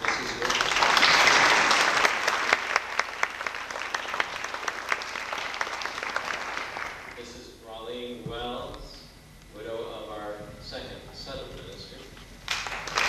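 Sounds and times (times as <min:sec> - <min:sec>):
congregation applauding: 0:00.0 - 0:07.3, 0:12.5 - 0:13.0.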